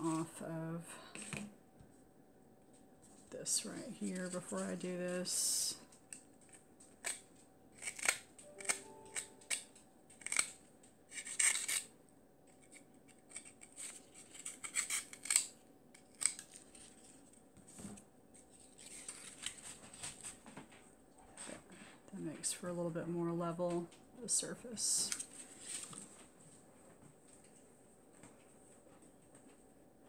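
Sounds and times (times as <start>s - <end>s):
scissors cutting cardboard: 6.4s - 9.6s, 10.2s - 11.9s, 12.6s - 17.1s
cardboard rustling: 16.5s - 20.7s, 25.1s - 26.4s.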